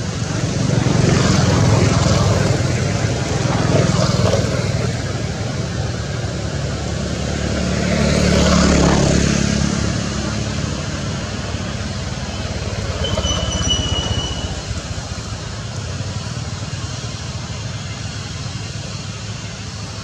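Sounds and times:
passing traffic engine rumble: 0.0 - 20.0.

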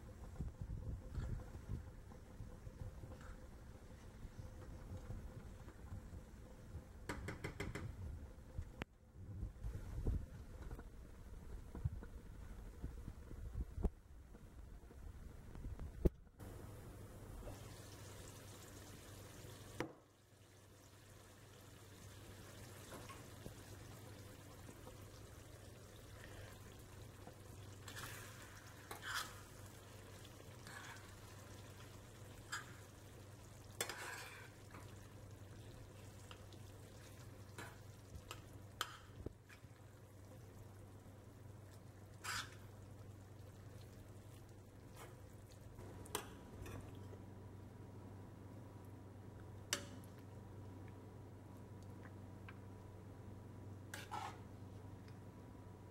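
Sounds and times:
food frying quietly: 0.0 - 55.9
spoon scraping metal pan: 27.9 - 29.7, 33.8 - 34.6, 42.2 - 42.6, 53.9 - 54.5.

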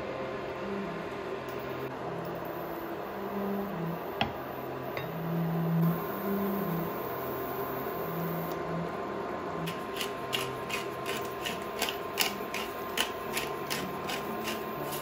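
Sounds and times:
pepper mill grinding clicks: 9.7 - 15.0.

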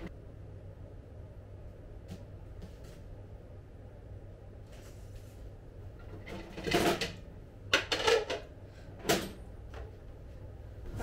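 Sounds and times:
pan clattering and knocking: 6.2 - 8.4.

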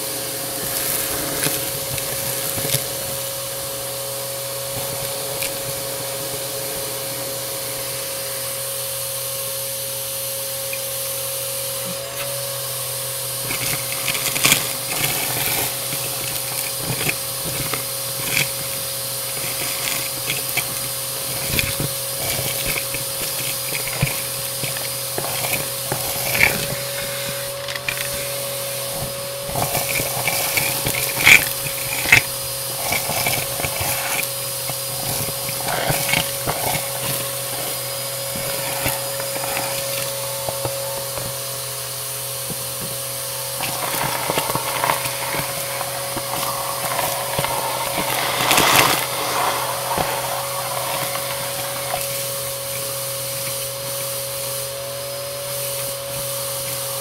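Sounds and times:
vacuum cleaner motor whine: 0.0 - 57.0
debris crackling as sucked up: 42.3 - 53.4.

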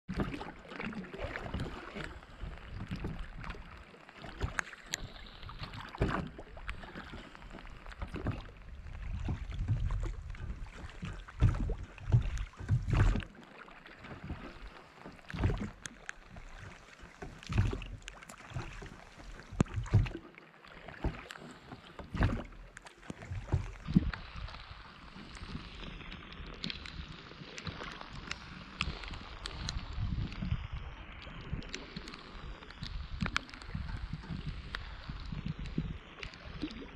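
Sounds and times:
rain falling on water: 0.1 - 36.9
oars thumping and knocking: 17.5 - 20.2.

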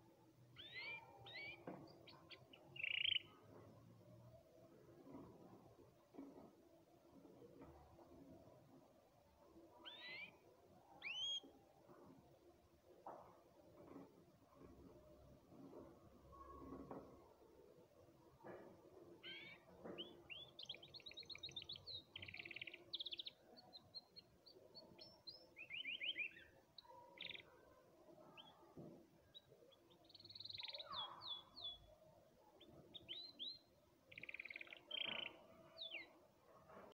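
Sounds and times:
canary singing: 0.6 - 3.3, 9.8 - 10.4, 11.0 - 11.5, 19.2 - 23.4, 32.9 - 36.1.

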